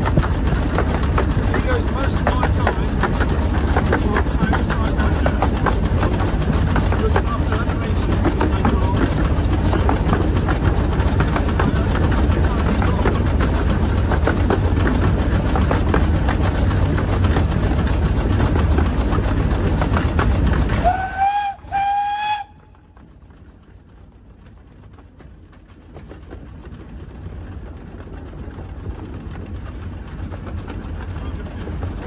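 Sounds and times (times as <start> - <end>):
steam locomotive running: 0.0 - 32.0
train clattering along track: 0.0 - 32.0
train whistle toots: 20.8 - 22.7.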